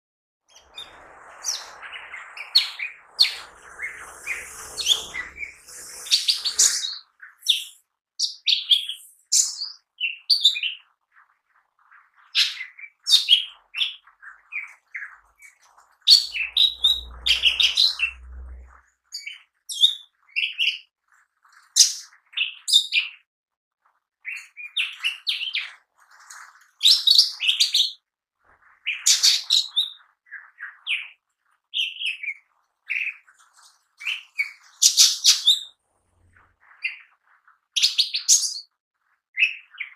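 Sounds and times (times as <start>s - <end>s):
bird singing chirps and whistles: 0.5s - 10.8s, 16.1s - 18.8s.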